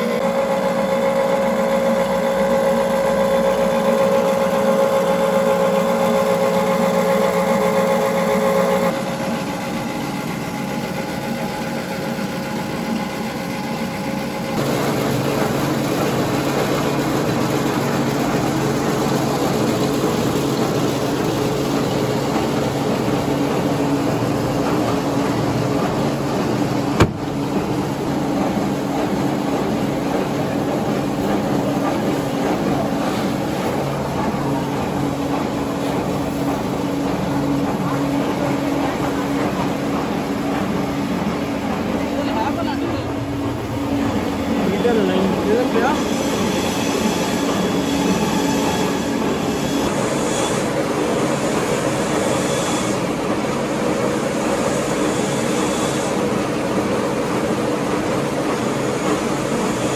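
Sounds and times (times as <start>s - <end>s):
machinery motor hum: 0.0s - 59.9s.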